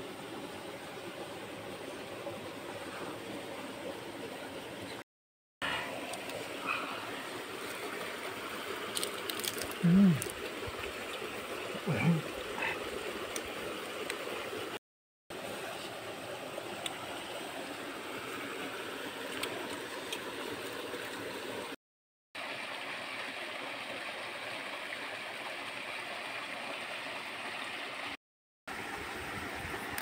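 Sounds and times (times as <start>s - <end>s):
stream water rushing: 5.6s - 21.8s, 22.4s - 30.0s.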